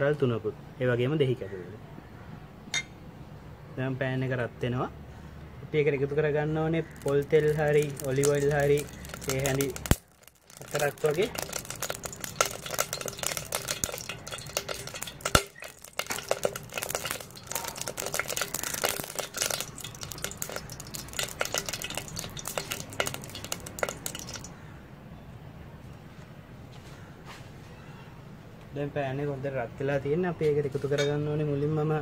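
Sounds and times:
oil crackling and popping: 6.8s - 24.6s.

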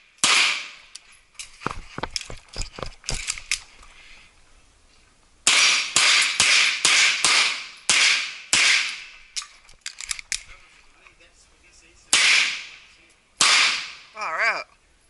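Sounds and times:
pistol shots: 0.2s - 0.8s, 5.5s - 9.1s, 12.1s - 12.8s, 13.4s - 14.0s.

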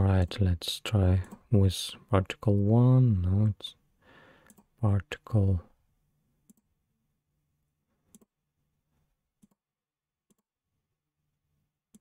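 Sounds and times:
faint mouse clicks: 4.4s - 4.7s.

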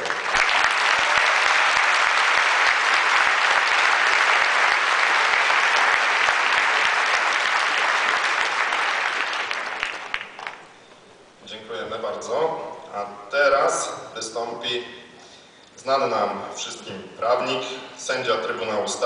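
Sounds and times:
large audience applauding: 0.0s - 10.8s.

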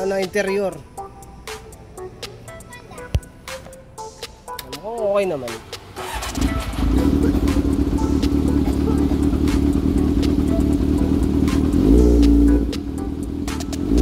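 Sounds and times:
motorcycle engine idling: 5.7s - 14.0s.

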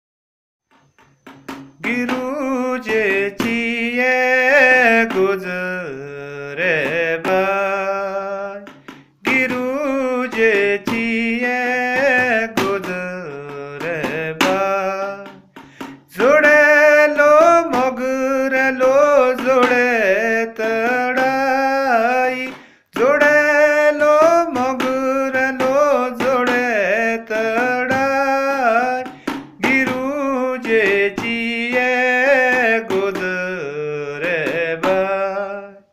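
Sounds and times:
man singing unaccompanied: 1.2s - 35.9s.

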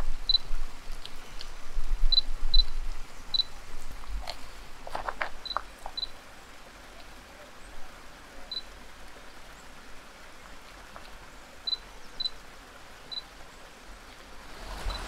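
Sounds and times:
creek rushing: 0.0s - 15.0s
faint clicks: 0.9s - 1.6s.

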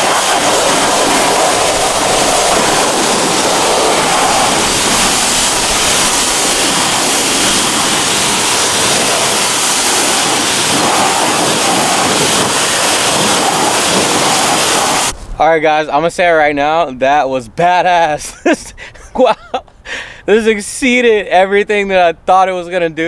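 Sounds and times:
pressure washer spraying water: 0.0s - 15.2s.

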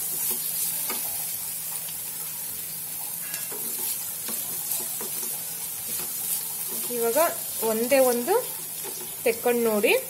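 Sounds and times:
vegetables sizzling in frying pan: 0.0s - 10.0s
wooden spatula scraping pan: 3.2s - 9.2s.

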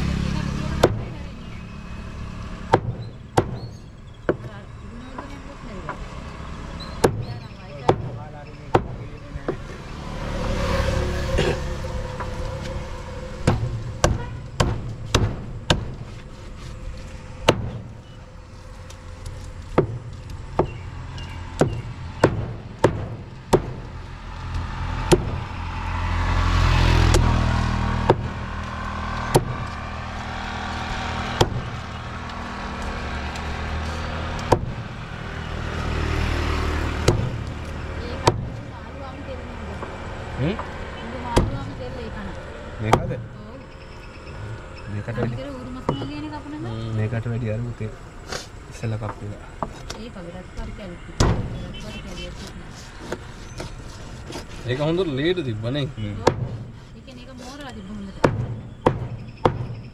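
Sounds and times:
low rumble: 9.8s - 35.8s.

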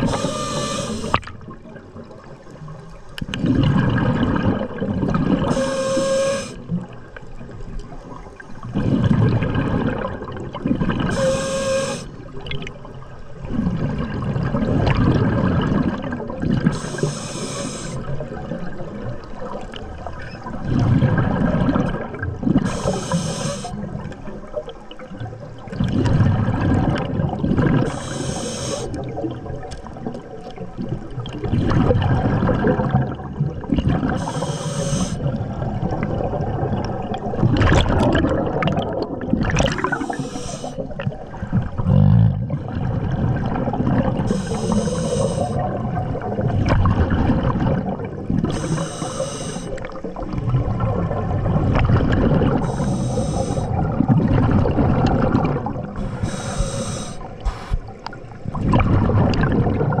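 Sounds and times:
hissing regulator inhalation: 0.0s - 1.3s, 5.5s - 6.7s, 11.1s - 12.2s, 16.7s - 18.1s, 22.6s - 23.8s, 27.9s - 29.0s, 34.2s - 35.3s, 39.7s - 40.9s, 44.2s - 45.7s, 48.5s - 49.9s, 52.6s - 53.8s, 56.0s - 58.0s
gurgling exhaled bubbles: 0.0s - 60.0s.

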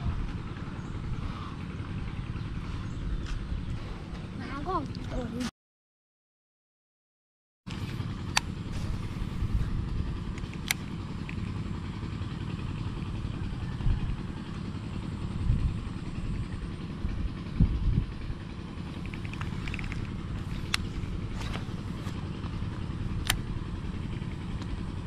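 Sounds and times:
wind buffeting microphone: 0.0s - 4.8s, 8.5s - 10.4s, 13.3s - 14.4s, 15.2s - 18.4s
sharp clicks: 10.3s - 11.6s, 19.0s - 21.6s, 23.2s - 23.5s.

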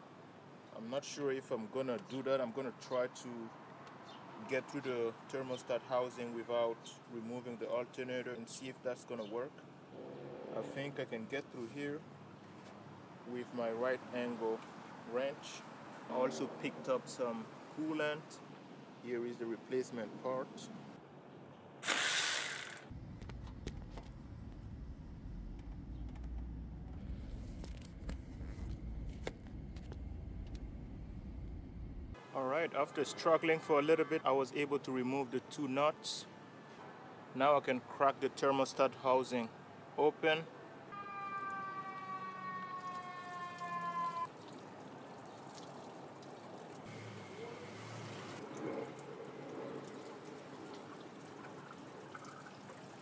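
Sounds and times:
low rumbling handling noise: 22.9s - 32.2s
siren wailing: 40.9s - 44.3s
coolant trickling out: 44.3s - 46.9s, 48.0s - 53.0s.

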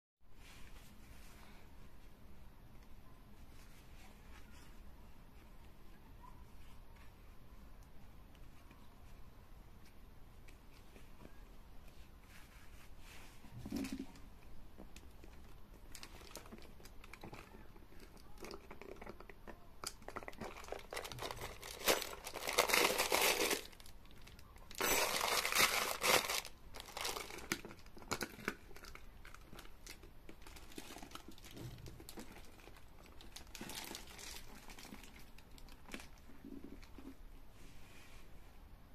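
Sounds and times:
plastic wrapping crinkling: 15.0s - 37.1s.

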